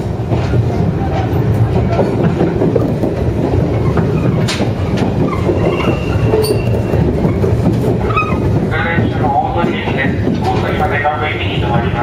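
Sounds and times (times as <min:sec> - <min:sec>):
train wheels rumbling on rail: 0:00.0 - 0:12.0
sharp rail clacks: 0:00.3 - 0:12.0
wheel squeal: 0:05.2 - 0:07.4, 0:08.0 - 0:08.5.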